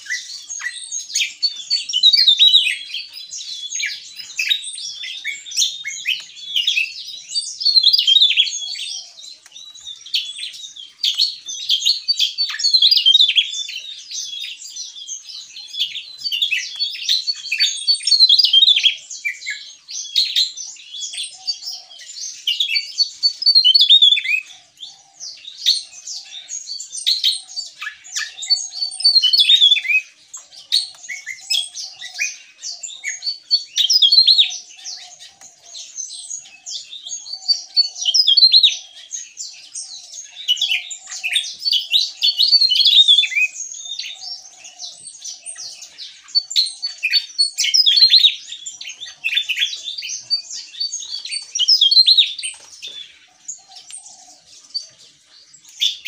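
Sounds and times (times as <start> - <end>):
bird singing high-pitched trills: 0.0 - 56.0.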